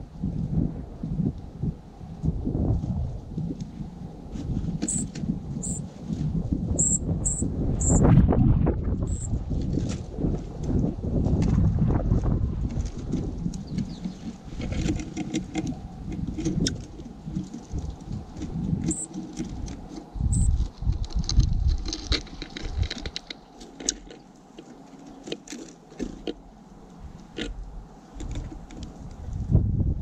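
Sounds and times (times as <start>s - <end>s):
birds pecking seed on wood: 4.7s - 6.2s, 12.7s - 29.4s.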